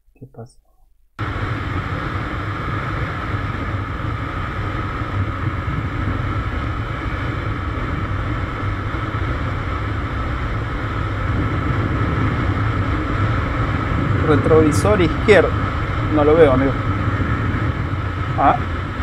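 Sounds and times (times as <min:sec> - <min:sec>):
motorcycle engine drone: 0:01.2 - 0:19.0
road noise: 0:01.2 - 0:19.0
wind noise: 0:01.2 - 0:19.0.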